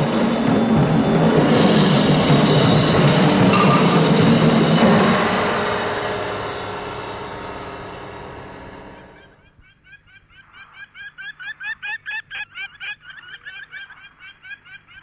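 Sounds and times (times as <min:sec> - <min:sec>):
rapid high-pitched animal calls: 0:09.2 - 0:15.0.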